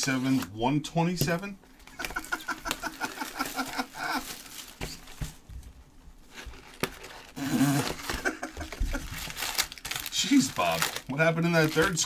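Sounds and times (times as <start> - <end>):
plastic wrap crinkling: 1.8 - 5.4, 6.2 - 12.0.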